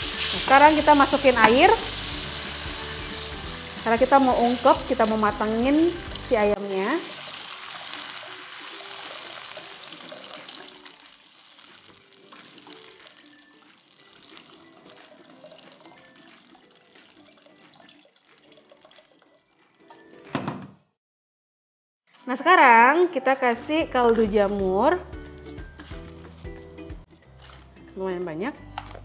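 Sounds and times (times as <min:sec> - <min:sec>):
water pouring into a pan: 0:07.0 - 0:19.5.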